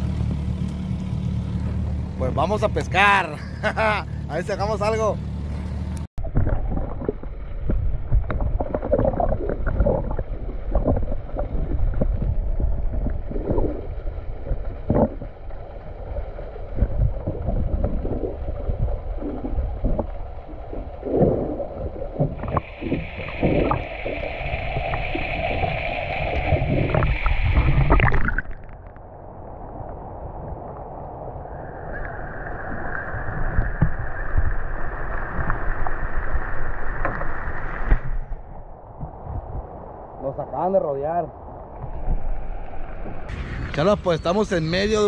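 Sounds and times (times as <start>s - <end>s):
steady high whine: 4.2s - 38.8s
underwater sloshing and gurgling: 6.1s - 40.4s, 41.3s - 43.7s.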